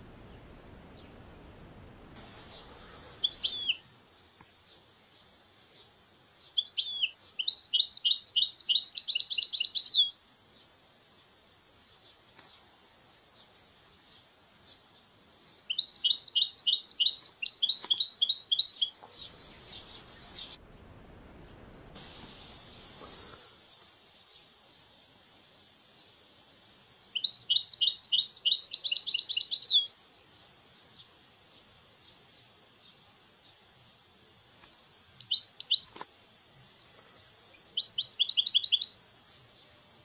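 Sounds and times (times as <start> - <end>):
steady high hiss: 0.0 - 40.0
goldfinch singing: 2.5 - 3.8, 6.6 - 10.1, 15.6 - 20.6, 27.0 - 29.9, 35.2 - 35.9, 37.6 - 39.0.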